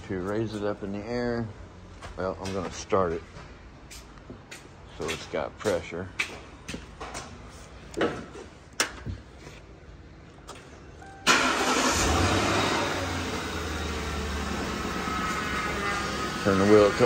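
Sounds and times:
car engine cranking and idling: 0:11.0 - 0:17.0.

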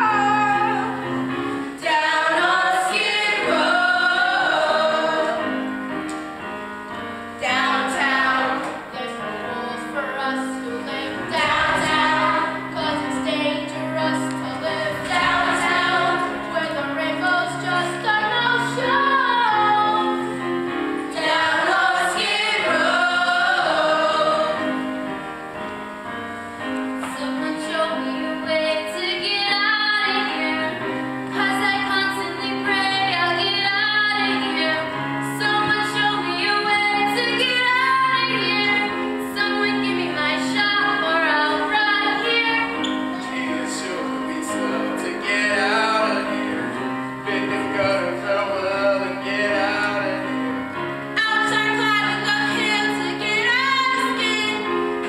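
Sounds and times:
group singing a show tune: 0:01.8 - 0:05.5, 0:07.4 - 0:09.2, 0:10.1 - 0:20.3, 0:21.1 - 0:24.8.

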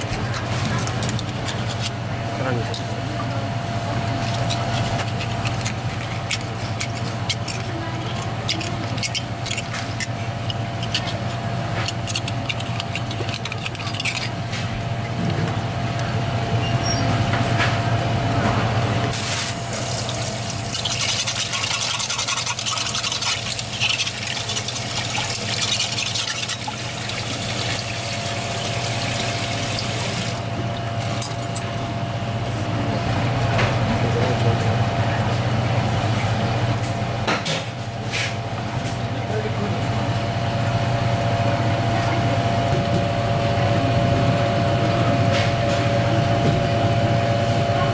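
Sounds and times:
low machine hum: 0:00.0 - 0:47.9
water running: 0:19.1 - 0:31.3.

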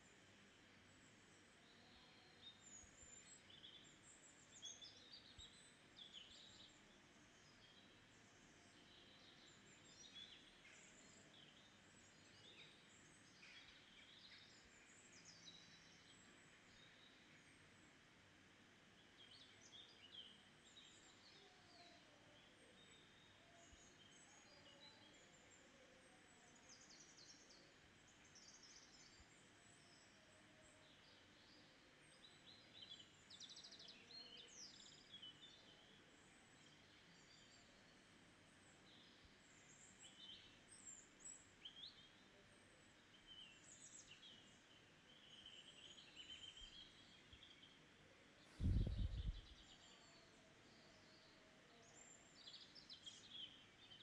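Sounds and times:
steady low hiss: 0:48.4 - 0:49.8
birds chirping and trilling: 0:48.6 - 0:49.7.

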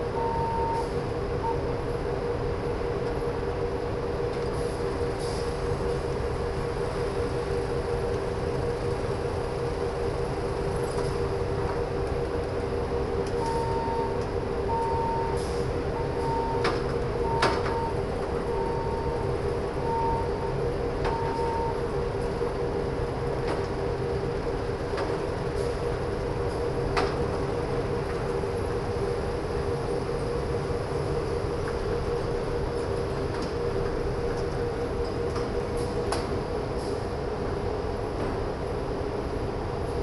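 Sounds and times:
forklift engine hum: 0:00.0 - 0:40.0
reversing beeper: 0:00.1 - 0:01.6, 0:13.4 - 0:21.8.

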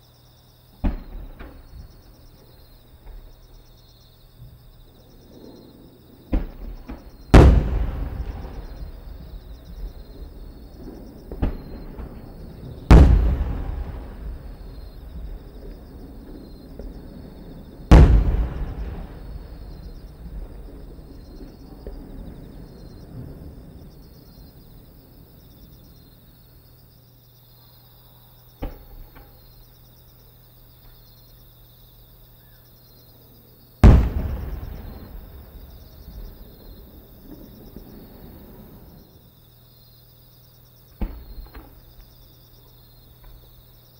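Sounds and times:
insects chirping: 0:00.0 - 0:43.9
sharp firework bang: 0:00.8 - 0:02.0, 0:06.3 - 0:17.0, 0:17.8 - 0:23.4, 0:33.8 - 0:39.0, 0:41.0 - 0:41.9
firework booms echoing: 0:00.8 - 0:26.0, 0:28.6 - 0:29.6, 0:33.8 - 0:39.2, 0:41.0 - 0:42.3.

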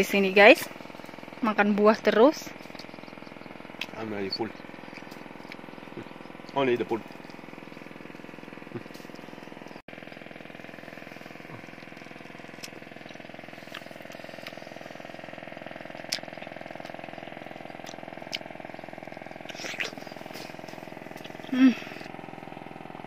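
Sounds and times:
motor hum: 0:00.0 - 0:23.0.

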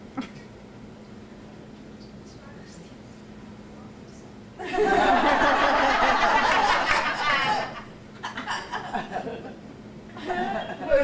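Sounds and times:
audience laughing: 0:04.6 - 0:09.6.

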